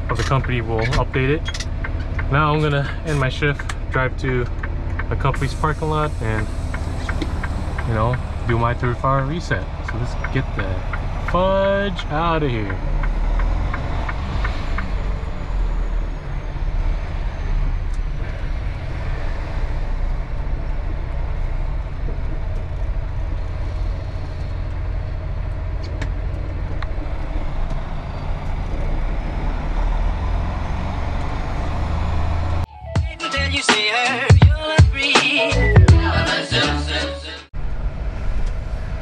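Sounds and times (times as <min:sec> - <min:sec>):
diesel truck engine rumble: 0:00.0 - 0:32.7, 0:35.5 - 0:39.0
road noise: 0:00.0 - 0:32.7, 0:35.2 - 0:39.0
music: 0:32.7 - 0:37.5.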